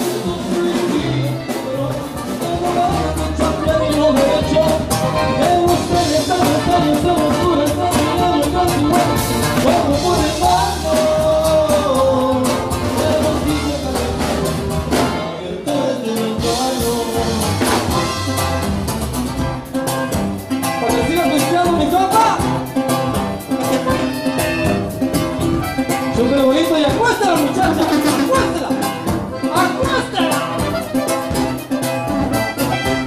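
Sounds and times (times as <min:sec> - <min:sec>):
person singing: 0:00.0 - 0:18.1, 0:27.6 - 0:31.1
brass band music: 0:00.0 - 0:33.0.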